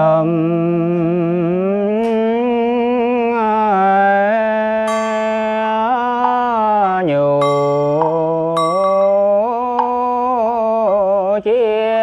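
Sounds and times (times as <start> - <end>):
person chanting: 0.0 - 12.0
small metal bell ringing: 4.9 - 11.1.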